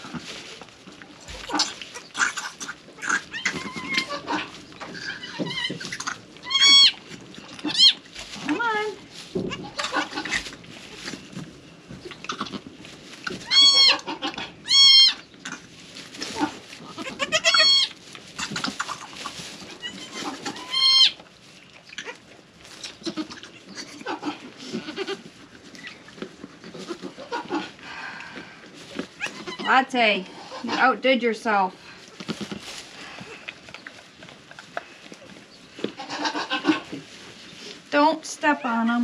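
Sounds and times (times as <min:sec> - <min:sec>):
rustling in straw: 0:00.0 - 0:39.0
goat bleating: 0:05.1 - 0:07.0, 0:09.6 - 0:10.4, 0:17.0 - 0:17.9, 0:23.0 - 0:25.2, 0:36.0 - 0:36.8.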